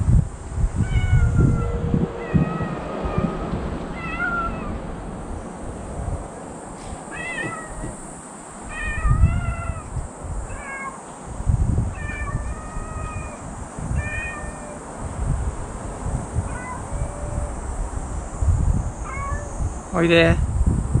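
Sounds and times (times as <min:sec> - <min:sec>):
low rumbling microphone noise: 0:00.0 - 0:10.6, 0:11.2 - 0:21.0
cat meowing: 0:00.8 - 0:04.8, 0:07.0 - 0:08.1, 0:08.7 - 0:11.0, 0:11.9 - 0:14.9, 0:16.4 - 0:17.6, 0:19.0 - 0:19.7.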